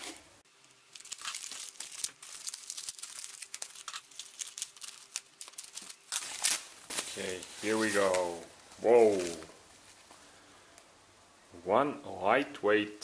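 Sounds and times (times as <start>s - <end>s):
foam sheet crinkling: 0.0s - 10.1s.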